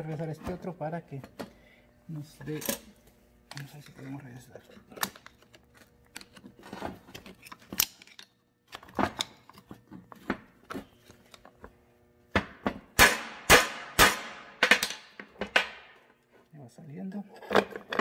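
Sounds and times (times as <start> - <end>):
hammer striking steel: 13.0 - 15.1.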